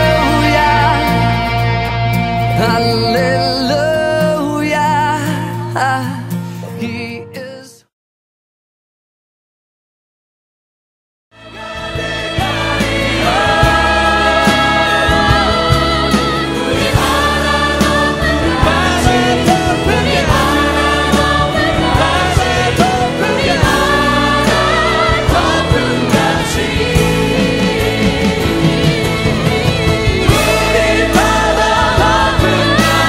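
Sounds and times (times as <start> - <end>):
choir singing: 0.0 - 3.9, 11.4 - 33.0
instrumental accompaniment: 11.4 - 33.0.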